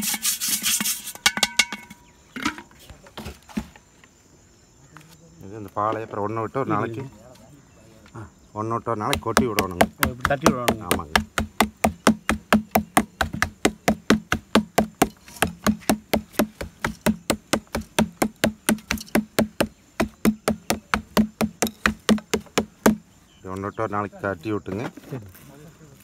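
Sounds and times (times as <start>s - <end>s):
wooden mallet knocking: 9.1s - 23.1s.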